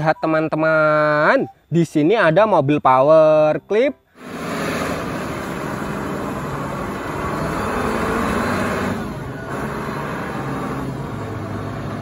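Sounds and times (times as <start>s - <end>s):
forklift engine running: 4.2s - 12.0s.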